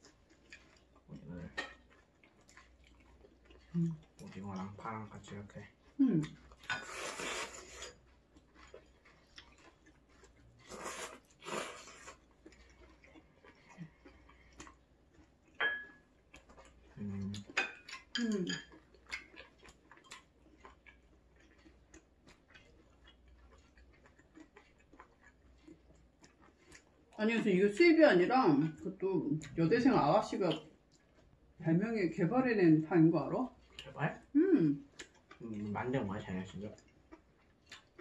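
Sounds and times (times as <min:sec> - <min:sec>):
chopsticks tapping dishes: 0:15.6 - 0:16.0, 0:17.5 - 0:18.8
tableware clink: 0:15.6 - 0:16.0.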